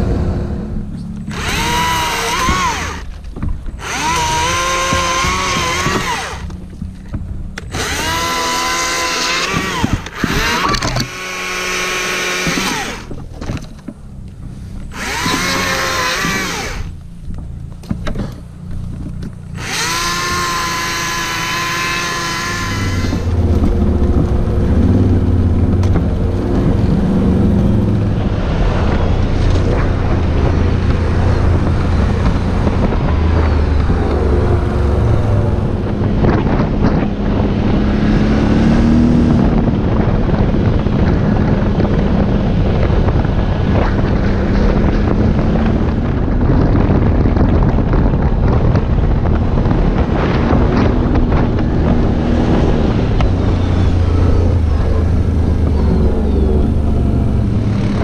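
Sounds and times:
quad bike engine running: 0.0s - 58.0s
chainsaw cutting wood: 1.2s - 6.7s, 7.6s - 13.2s, 14.9s - 17.0s, 19.2s - 26.2s.

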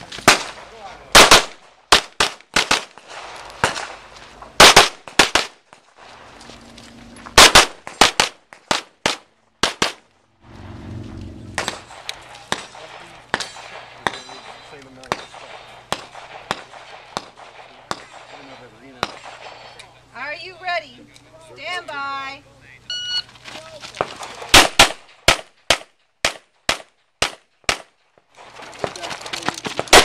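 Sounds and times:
handgun shots: 7.4s - 10.0s, 11.6s - 18.4s, 24.0s - 27.9s
low rumble: 10.2s - 14.7s.

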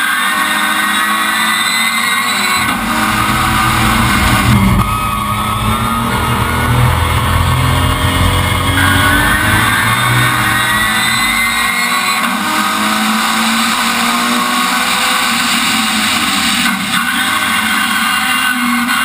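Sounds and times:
car engine revving hard: 0.0s - 19.0s
heavy low rumble: 2.5s - 12.0s.

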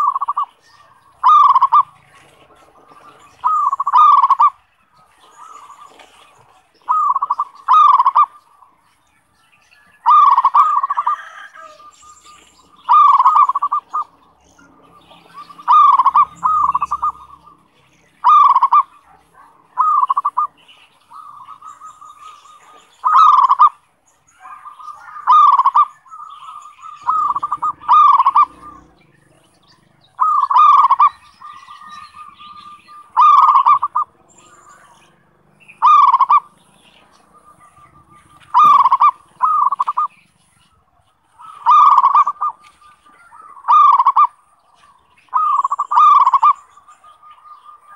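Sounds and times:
dove cooing: 0.0s - 8.8s, 9.9s - 47.9s.

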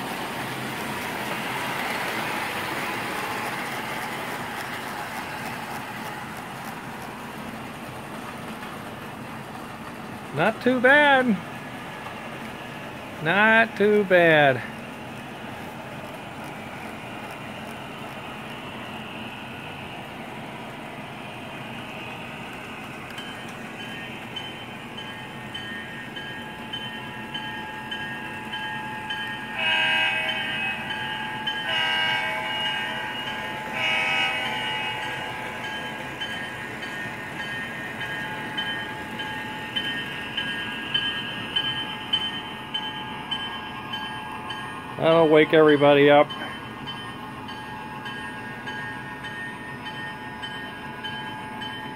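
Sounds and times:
model train wheels and motor rumbling: 0.0s - 51.9s
loud train horn blasts: 29.6s - 30.9s, 31.6s - 33.0s, 33.7s - 35.0s.

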